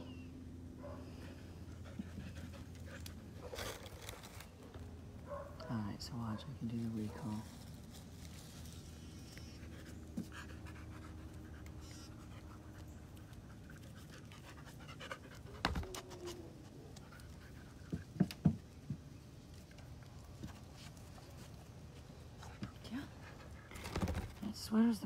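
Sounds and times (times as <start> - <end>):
dog panting: 1.2 - 3.5, 9.5 - 18.2, 22.2 - 23.9.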